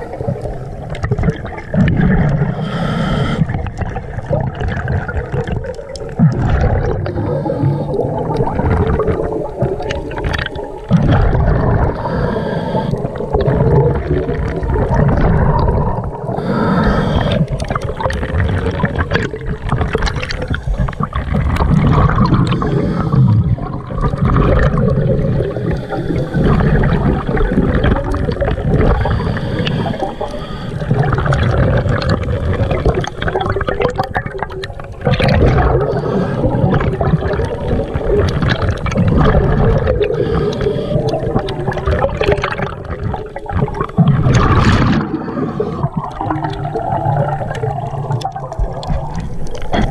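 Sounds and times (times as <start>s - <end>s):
underwater regulator bubbles: 0.0s - 49.9s
diver inhaling through regulator: 2.3s - 3.7s, 7.0s - 8.5s, 11.6s - 13.6s, 16.0s - 18.7s, 22.1s - 23.9s, 25.1s - 33.8s, 35.5s - 37.7s, 39.4s - 41.8s, 44.4s - 46.3s.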